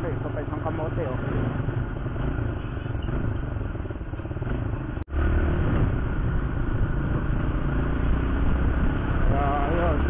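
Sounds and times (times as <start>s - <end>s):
motorcycle engine running: 0.0s - 10.0s
road and wind noise: 0.0s - 10.0s.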